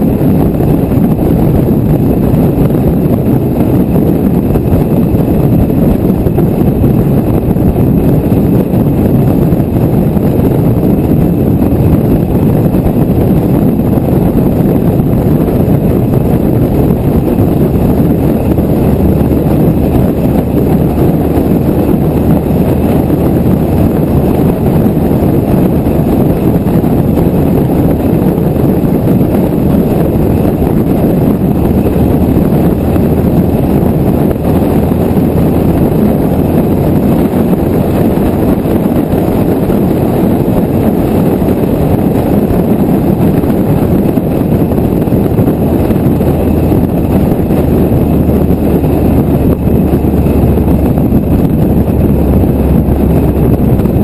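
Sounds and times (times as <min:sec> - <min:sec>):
car road and engine noise: 0:00.0 - 0:54.0
wind buffeting microphone: 0:00.0 - 0:54.0.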